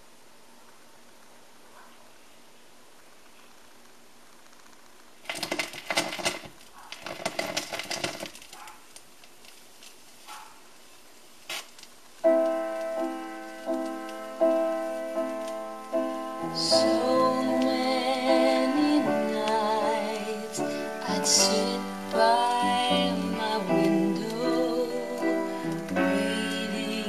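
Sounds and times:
irregular vinyl noise: 0.0s - 27.0s
keyboard chords: 12.2s - 27.0s.

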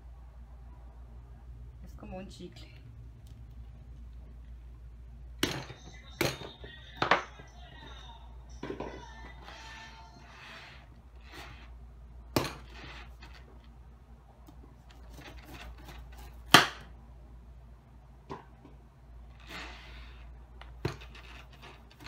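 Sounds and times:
knife scraping fruit rind: 9.4s - 11.8s, 12.4s - 13.5s, 14.8s - 16.8s, 19.3s - 22.0s.

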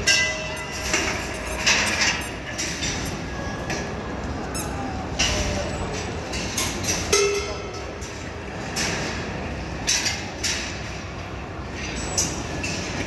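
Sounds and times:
balls clicking and clanking: 0.0s - 4.4s
balls rolling on metal rails: 0.0s - 4.4s.

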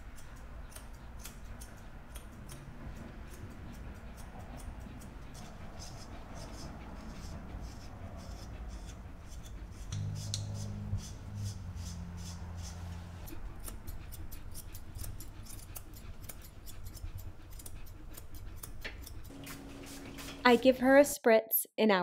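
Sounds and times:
scissors snipping fur: 0.0s - 10.6s, 13.2s - 19.6s.

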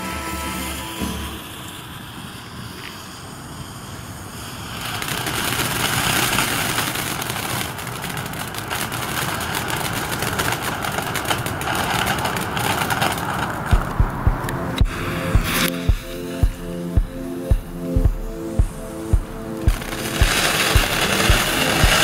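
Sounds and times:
firework fountain hissing: 0.1s - 13.8s, 18.8s - 22.0s
firework crackles: 0.1s - 22.0s.

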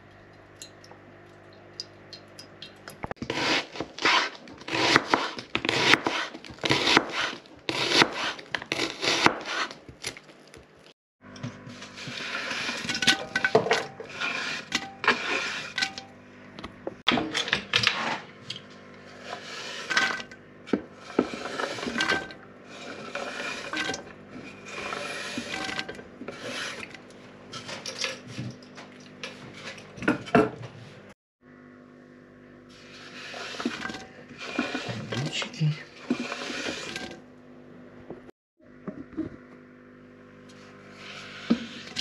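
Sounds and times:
hand scraping cutting board: 3.2s - 9.8s, 11.6s - 13.3s, 14.0s - 15.8s, 19.0s - 20.3s, 21.0s - 27.0s, 32.8s - 37.2s, 40.6s - 42.0s.

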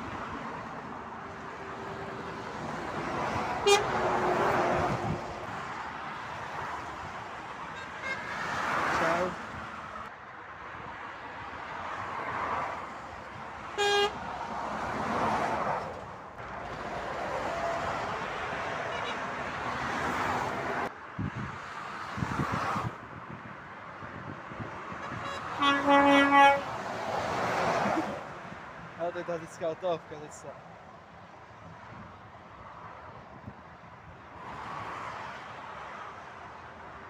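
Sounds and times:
motorway traffic passing: 0.0s - 37.0s
lorry horn blast: 3.6s - 4.0s, 25.0s - 26.7s
short horn toot: 25.0s - 26.7s.

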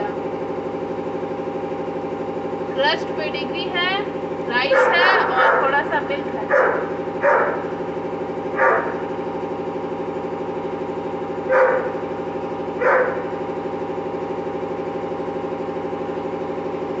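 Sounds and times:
engine idling: 0.0s - 17.0s
dog barking: 4.5s - 5.8s, 6.4s - 7.7s, 8.6s - 9.1s, 11.5s - 12.0s, 12.8s - 13.4s.

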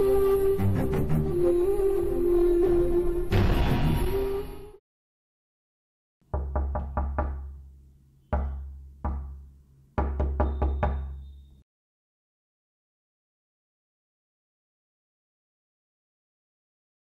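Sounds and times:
background music: 0.0s - 4.8s
knocking on a door: 6.3s - 7.6s, 8.3s - 9.4s, 10.0s - 11.2s.

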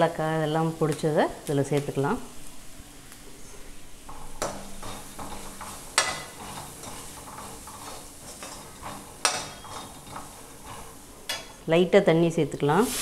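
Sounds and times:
oil sizzling: 0.0s - 12.0s, 12.6s - 13.0s
spoon scraping and stirring in pan: 4.0s - 11.7s.

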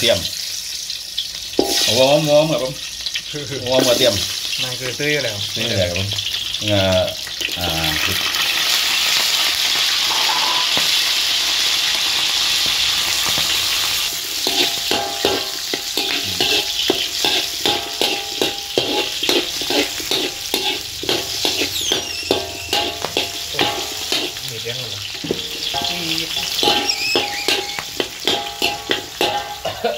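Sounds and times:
oil sizzling in a wok: 0.0s - 29.9s
metal spatula scraping a wok: 1.2s - 2.2s, 3.8s - 4.5s, 13.2s - 29.7s.

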